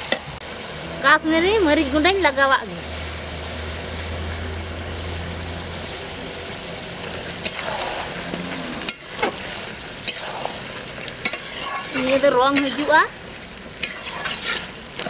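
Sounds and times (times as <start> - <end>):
curry sizzling in a pot: 0.0 - 15.0
low hum: 0.4 - 9.0.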